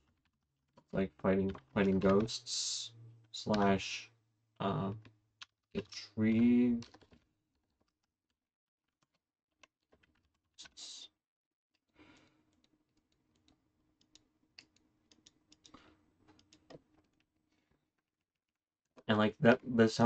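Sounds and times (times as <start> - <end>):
faint keyboard typing: 0.0 - 3.9, 4.6 - 8.2, 8.9 - 11.1, 11.9 - 18.0.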